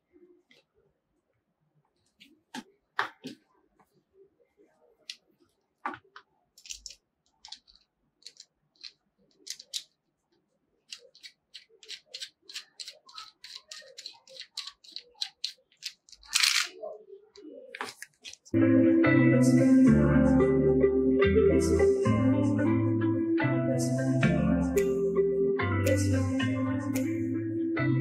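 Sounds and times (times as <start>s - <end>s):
plastic parts clicking and tapping: 6.2s - 9.9s, 10.9s - 16.8s.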